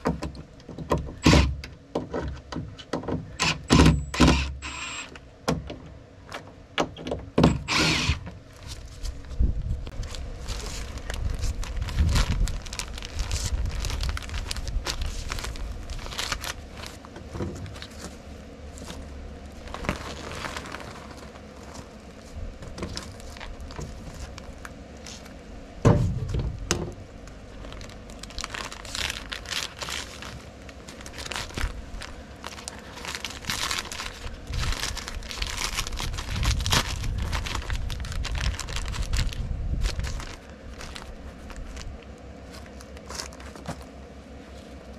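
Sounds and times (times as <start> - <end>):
paper crinkling and rustling: 8.4 - 26.4, 27.2 - 44.9.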